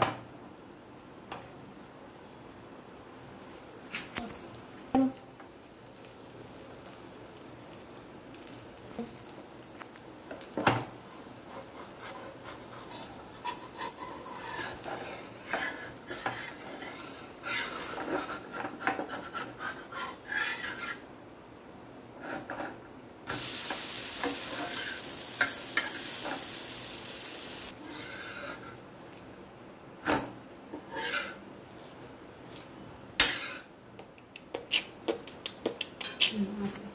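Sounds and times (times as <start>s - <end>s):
frying sizzle: 0.0s - 21.1s, 23.2s - 29.3s, 30.1s - 33.8s
spatula scraping a metal pan: 11.0s - 21.0s, 24.2s - 26.5s, 27.8s - 28.8s, 30.8s - 31.4s, 33.2s - 33.7s
steady hiss: 23.2s - 33.8s.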